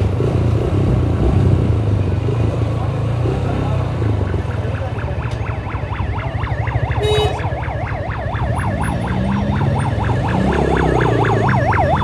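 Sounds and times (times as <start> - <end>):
vehicle engines rumbling: 0.0 - 12.0
ambulance siren yelping: 3.8 - 12.0.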